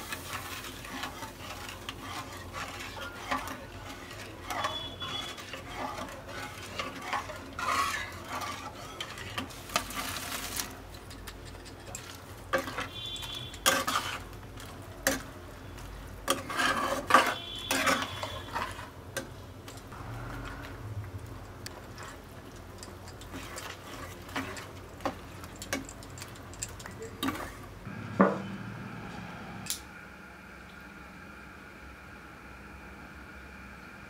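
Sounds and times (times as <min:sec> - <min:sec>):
metal spatula scraping pan: 0:00.0 - 0:19.3, 0:23.0 - 0:25.8
curry sizzling faintly: 0:00.0 - 0:29.4.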